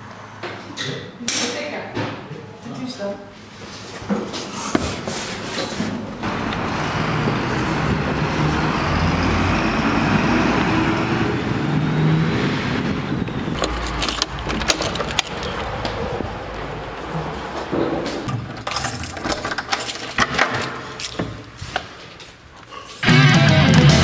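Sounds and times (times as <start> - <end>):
cars driving past: 6.2 - 18.3
sharp clicks and rattles: 13.5 - 16.0, 18.2 - 21.2.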